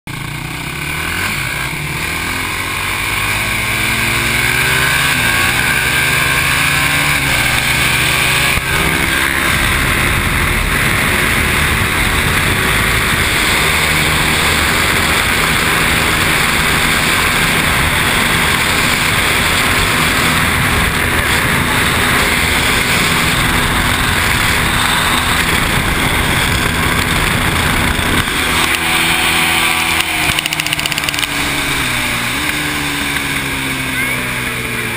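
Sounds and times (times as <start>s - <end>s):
atv engine accelerating: 0.1s - 34.9s
wind rushing on microphone: 7.2s - 33.8s.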